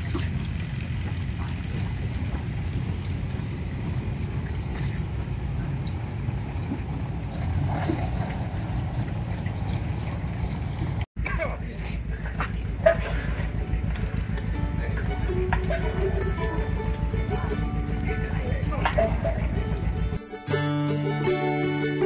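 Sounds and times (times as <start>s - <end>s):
steam traction engines rumbling: 0.0s - 20.2s.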